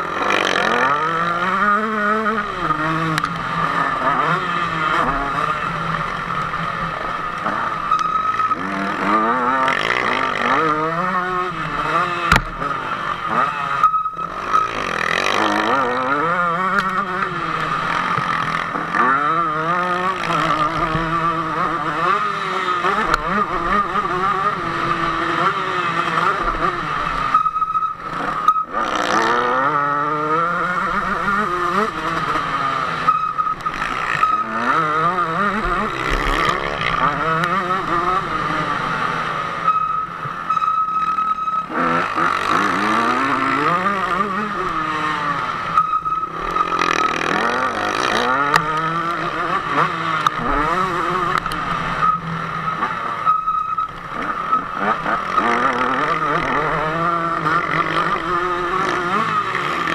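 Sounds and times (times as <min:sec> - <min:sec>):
motocross engine revving: 0:00.0 - 0:27.4, 0:28.0 - 0:53.3, 0:53.9 - 0:59.9.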